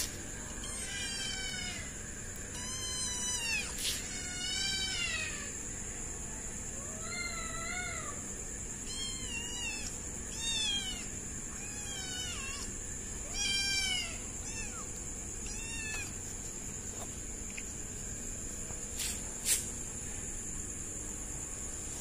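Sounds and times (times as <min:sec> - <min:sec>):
kitten meowing: 0:08.9 - 0:12.7, 0:13.3 - 0:16.2.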